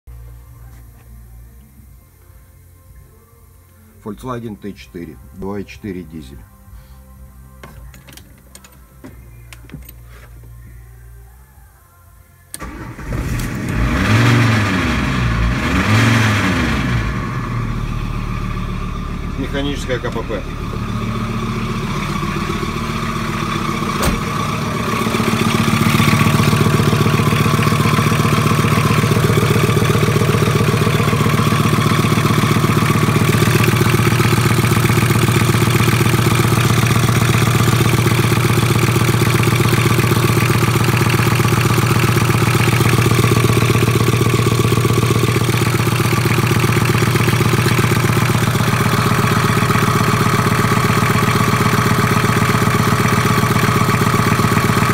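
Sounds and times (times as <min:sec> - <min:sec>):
diesel engine idling: 0:12.5 - 0:54.9.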